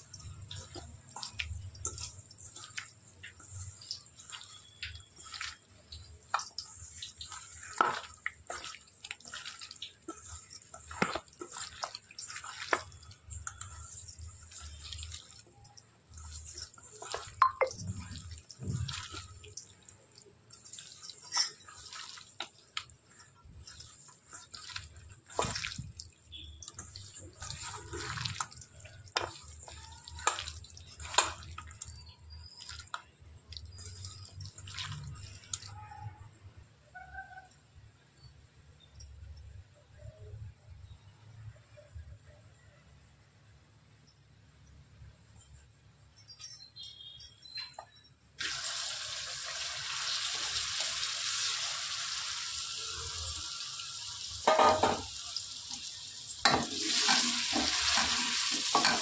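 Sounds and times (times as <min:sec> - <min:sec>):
hands squelching meat in marinade: 0:00.0 - 0:36.3.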